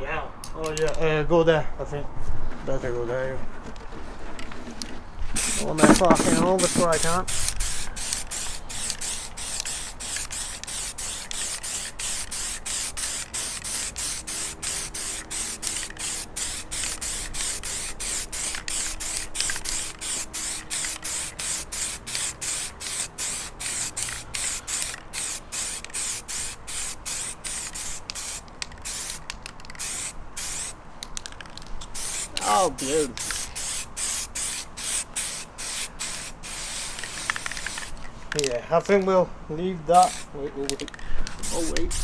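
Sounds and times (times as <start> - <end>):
spray can hissing bursts: 5.4 - 30.8, 32.0 - 38.0, 40.0 - 40.3, 41.3 - 42.0.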